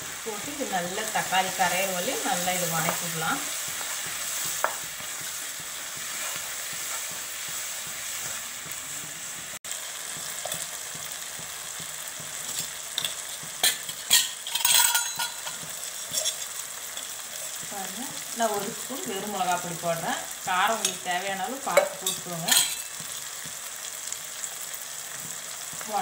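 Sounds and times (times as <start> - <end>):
vegetables sizzling in oil: 0.0 - 26.0
spatula scraping a pan: 1.8 - 17.6.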